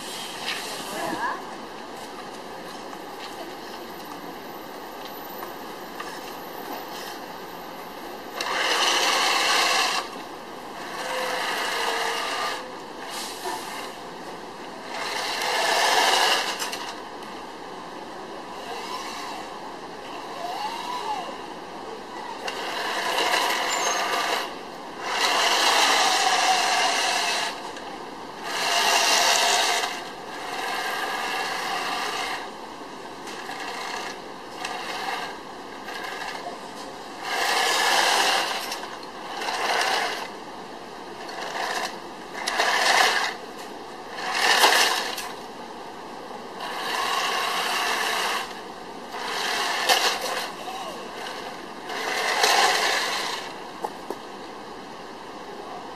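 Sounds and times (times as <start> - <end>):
toy tank electric motors: 8.4 - 14.0, 14.8 - 17.0, 18.5 - 21.4, 22.3 - 32.5, 33.2 - 36.6, 37.2 - 40.4, 41.2 - 43.4, 44.1 - 45.4, 46.6 - 53.6
plastic tracks scraping pavement: 41.2 - 45.4, 51.2 - 54.3.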